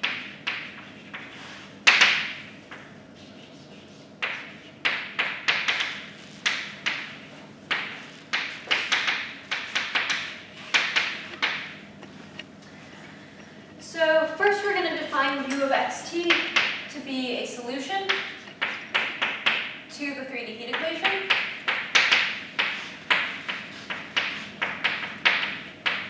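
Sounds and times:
chalk writing on blackboard: 0.0 - 11.2, 18.1 - 19.6, 21.3 - 26.0.

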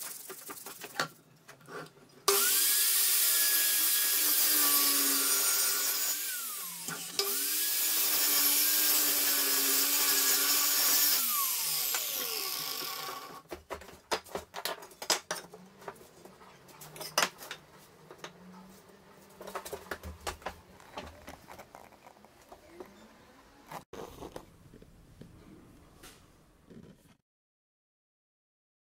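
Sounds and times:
mitre saw cutting wood: 2.3 - 13.4
wood pieces knocking together: 13.5 - 15.6.

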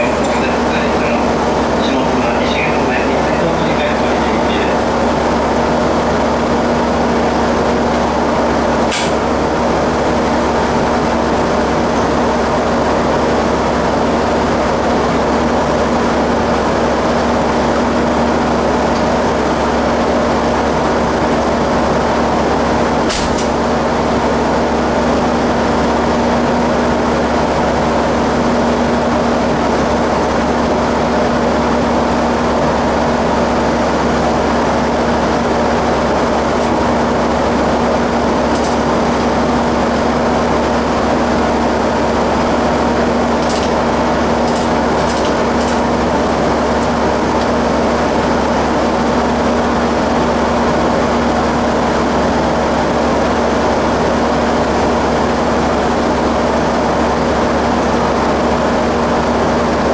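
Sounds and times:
diesel railcar engine idling: 0.0 - 59.9
sharp click: 8.9 - 9.2, 23.1 - 23.6, 38.5 - 38.8, 43.4 - 43.8, 44.5 - 45.8.

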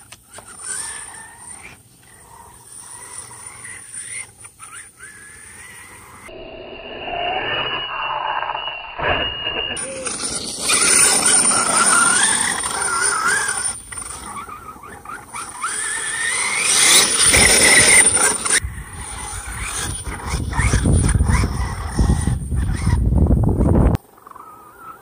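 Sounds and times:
electric motor whining: 0.3 - 23.7
tyres churning dirt: 9.8 - 22.9.

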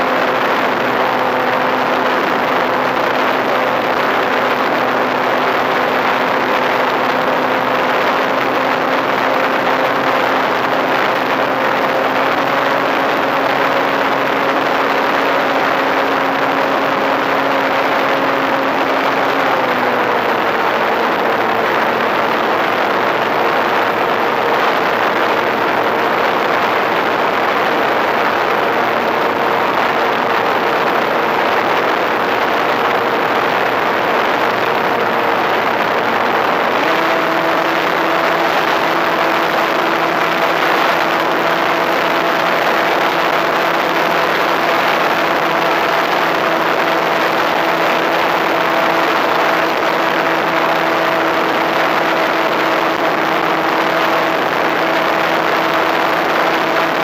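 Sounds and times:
airflow rushing over camera: 0.0 - 57.0
motor and propeller drone: 0.0 - 57.0.

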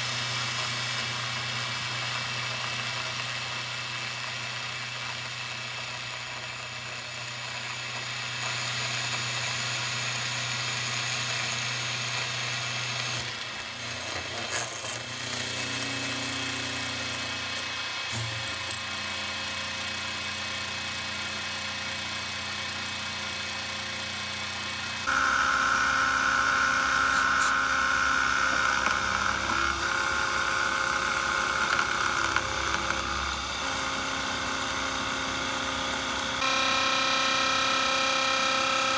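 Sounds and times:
milling machine whining: 0.1 - 15.4, 17.4 - 18.9, 25.1 - 38.9.

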